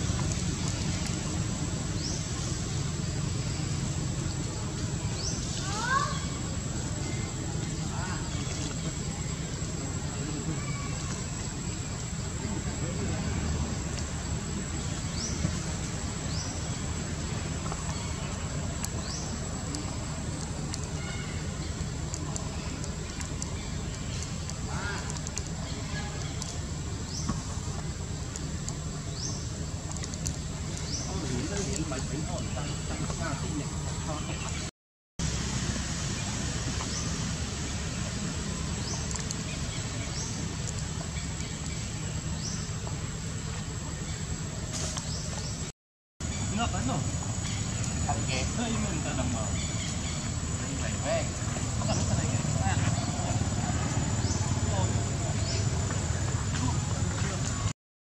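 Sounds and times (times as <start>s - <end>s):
low rumble and hiss: 0.0s - 57.7s
faint clicks: 17.6s - 26.6s, 29.8s - 31.0s, 38.8s - 39.5s.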